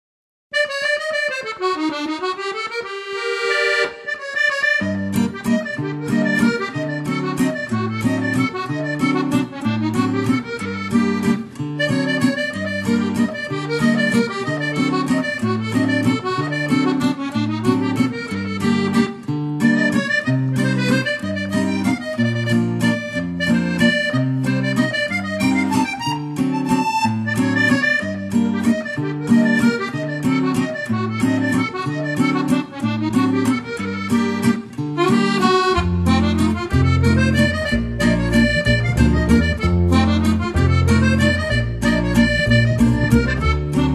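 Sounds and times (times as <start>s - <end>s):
accordion-like melody: 0.5s - 43.9s
bouncing bass line: 28.6s - 43.9s.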